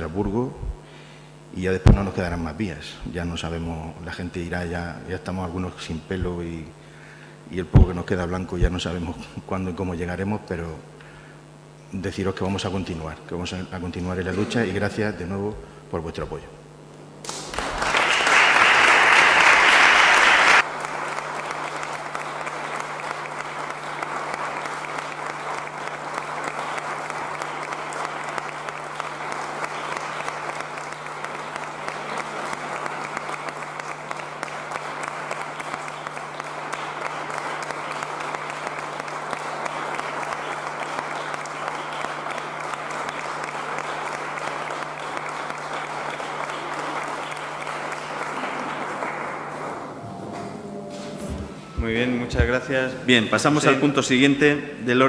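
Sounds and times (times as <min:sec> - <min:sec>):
faint low hum: 0:00.0 - 0:55.0
crowd applauding: 0:17.2 - 0:50.6, 0:51.7 - 0:54.4.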